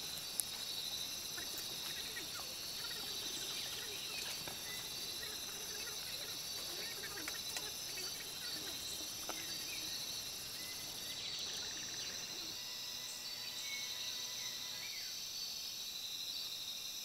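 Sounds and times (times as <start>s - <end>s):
faint chirping calls: 0.0s - 15.4s
insects chorus: 0.0s - 17.0s.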